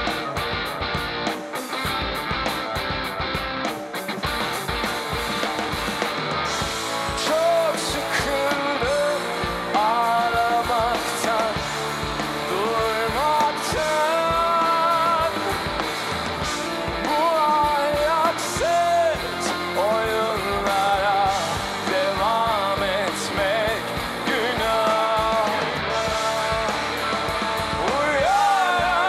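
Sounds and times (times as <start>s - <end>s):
bass guitar: 0.0s - 29.0s
drums: 0.0s - 29.0s
electric guitar: 0.0s - 29.0s
person singing: 7.1s - 15.8s, 16.9s - 29.0s.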